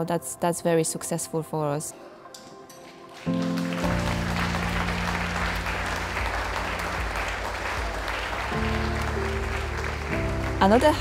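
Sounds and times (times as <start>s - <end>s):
music of held low chords: 2.4s - 11.0s
audience applauding: 3.1s - 11.0s.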